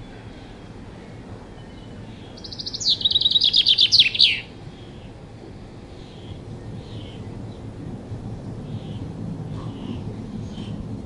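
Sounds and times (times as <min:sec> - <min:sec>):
chaffinch singing: 0:00.0 - 0:05.2
low background hiss: 0:00.0 - 0:11.0.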